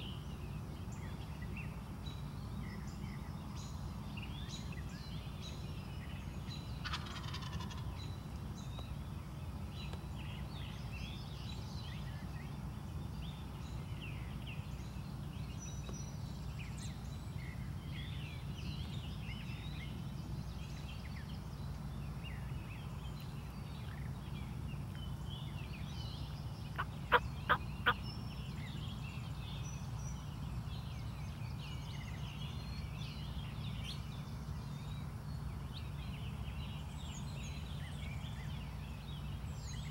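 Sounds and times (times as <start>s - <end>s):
low background hum: 0.0s - 39.9s
small birds chirping: 0.0s - 39.9s.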